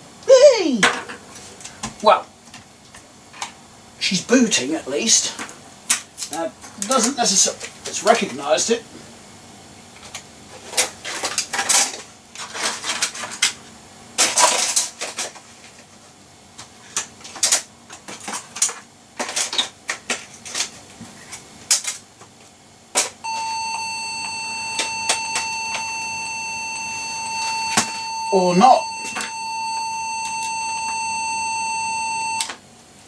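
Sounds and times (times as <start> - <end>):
high-pitched computer beep: 23.3 - 32.5.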